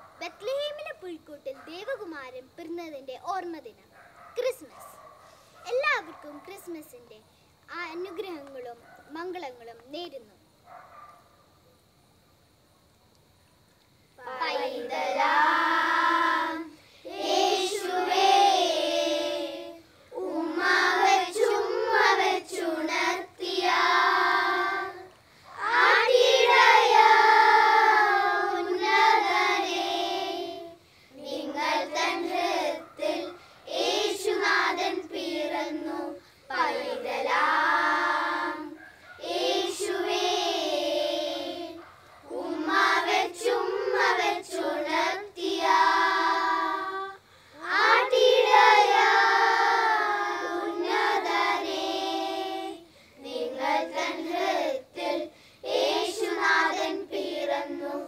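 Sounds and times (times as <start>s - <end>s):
children singing a carol: 14.2s - 58.0s.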